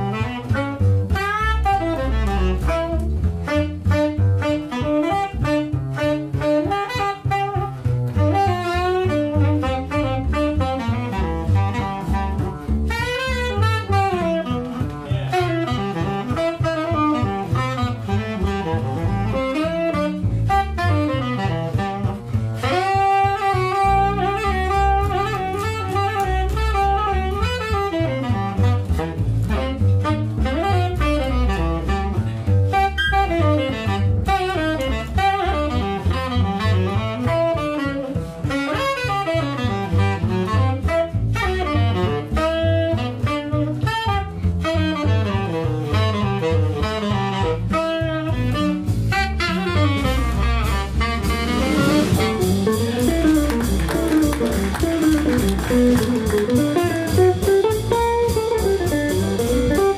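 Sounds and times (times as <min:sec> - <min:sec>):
jazz combo playing swing: 0:00.0 - 0:59.9
tenor saxophone melody: 0:00.0 - 0:59.9.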